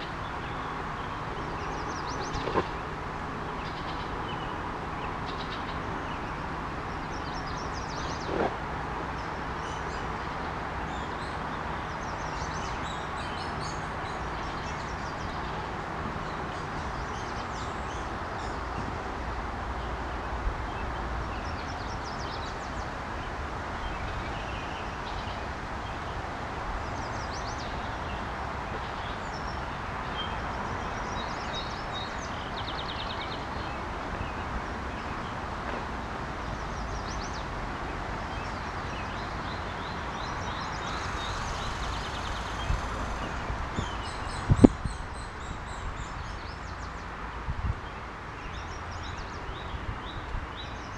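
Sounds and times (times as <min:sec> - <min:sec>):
small birds chirping: 0:00.0 - 0:18.9, 0:19.8 - 0:47.2
river flowing: 0:00.0 - 0:50.9.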